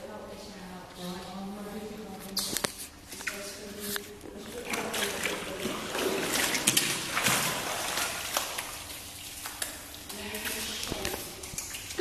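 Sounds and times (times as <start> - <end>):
dog swimming splashing water: 3.3 - 12.0.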